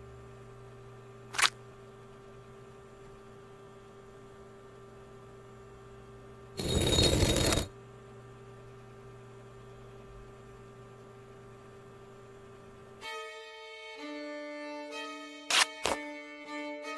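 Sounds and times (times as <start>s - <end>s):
steady low hum: 0.0s - 13.1s.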